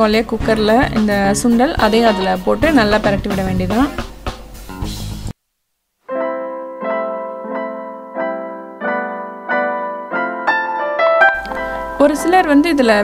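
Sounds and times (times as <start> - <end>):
piano chords: 6.1 - 13.0.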